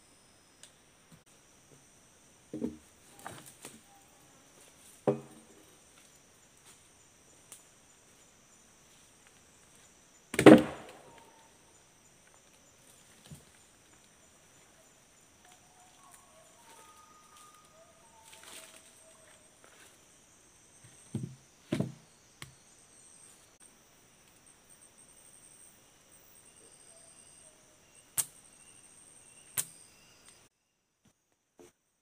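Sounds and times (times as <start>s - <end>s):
high-pitched insect drone: 11.0s - 21.3s, 22.1s - 30.5s.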